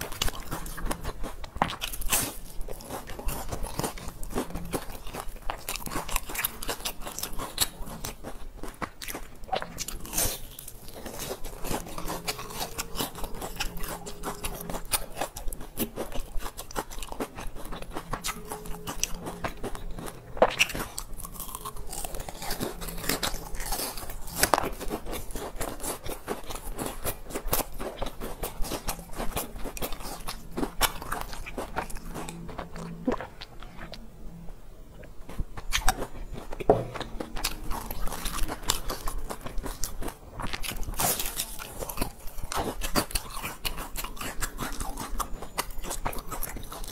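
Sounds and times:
crunchy food being chewed: 0.0s - 46.9s.

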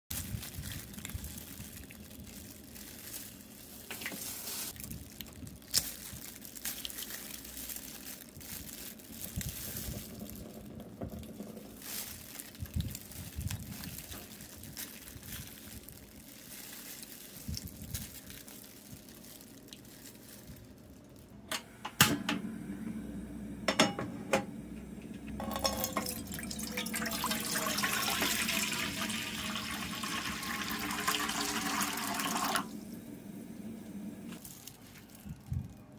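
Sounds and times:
handling sounds: 0.1s - 22.4s, 23.7s - 29.0s, 34.3s - 35.9s
water pouring into frying pan: 25.4s - 32.8s.

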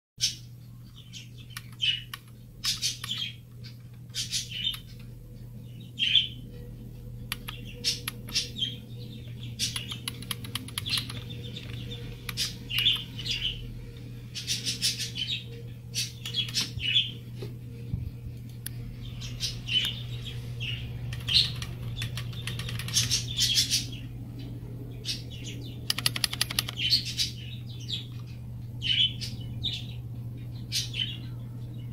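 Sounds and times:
low hum: 0.4s - 31.9s
clicky keyboard typing: 1.5s - 3.2s, 7.2s - 8.5s, 9.7s - 13.1s, 21.1s - 23.2s, 25.9s - 26.9s.

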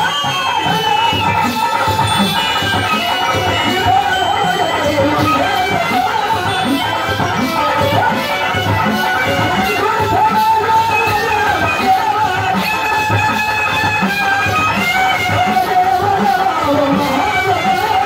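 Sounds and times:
drum beat: 0.0s - 18.0s
folk dance music: 0.0s - 18.0s.

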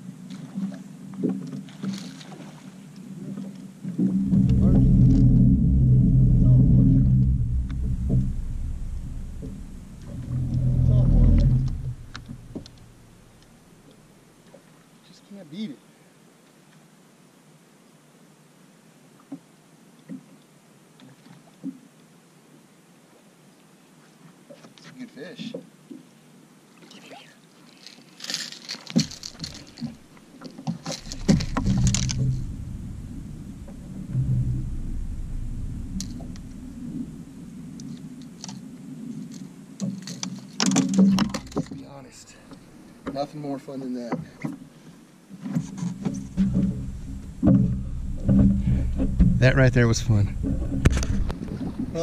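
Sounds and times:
engine rumble: 4.0s - 14.0s, 30.9s - 38.5s, 45.8s - 52.0s
fish flopping on boat deck: 27.9s - 38.6s, 45.4s - 52.0s.

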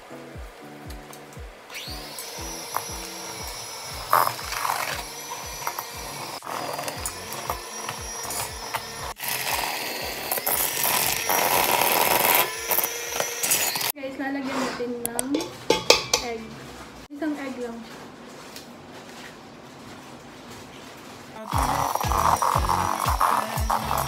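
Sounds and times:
background music with beat: 0.0s - 6.4s, 7.0s - 10.3s, 21.5s - 24.0s
electric hand mixer whining: 1.7s - 14.0s, 21.5s - 24.0s.

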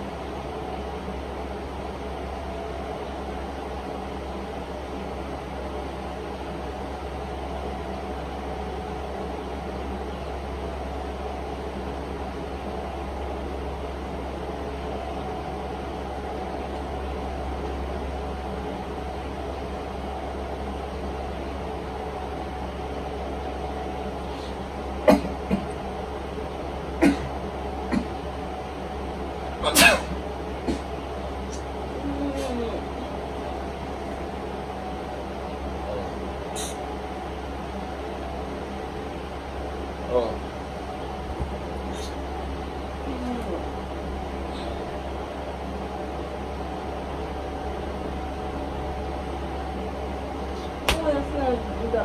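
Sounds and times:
machine hum and hiss: 0.0s - 52.0s
man fake sneezing: 29.6s - 30.1s.

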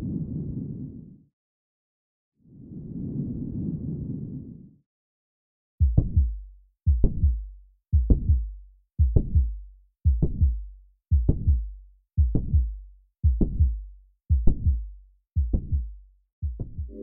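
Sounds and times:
heartbeat through stethoscope: 5.8s - 17.0s.

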